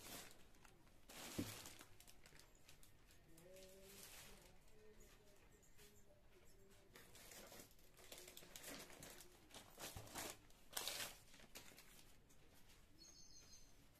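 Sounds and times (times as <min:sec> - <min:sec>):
packing paper crinkling: 0:00.0 - 0:04.8, 0:06.9 - 0:12.3.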